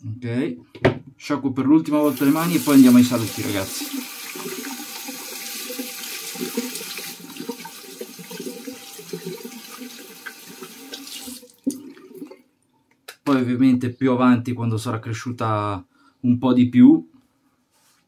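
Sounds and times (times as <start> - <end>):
tap water running into sink: 2.0 - 12.4.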